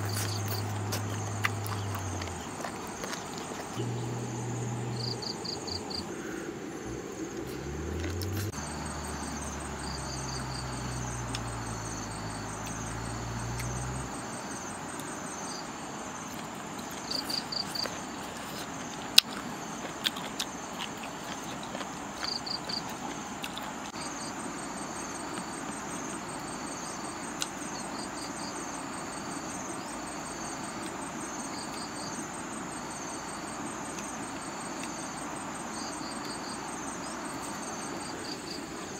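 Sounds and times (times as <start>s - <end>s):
high insect whine: 0.0s - 18.8s
insects chirping: 0.0s - 38.9s
low motor drone: 3.7s - 14.0s.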